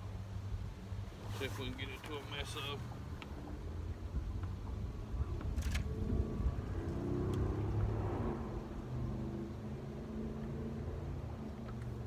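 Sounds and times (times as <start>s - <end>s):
engine droning: 0.0s - 12.0s
low rumble: 2.8s - 11.6s.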